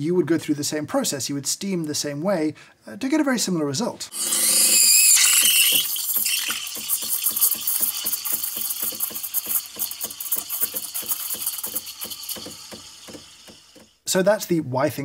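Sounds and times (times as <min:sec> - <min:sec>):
steam wand hissing: 0:04.1 - 0:14.0.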